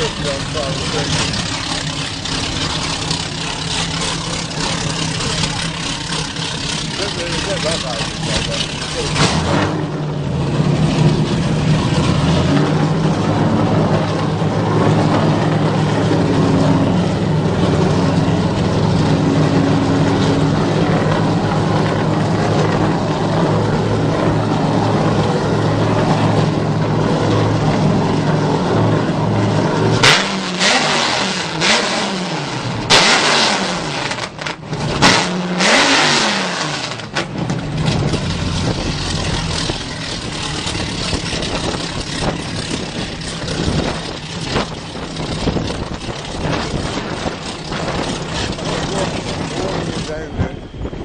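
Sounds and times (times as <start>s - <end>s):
speedboat engine idling and revving: 0.0s - 51.0s.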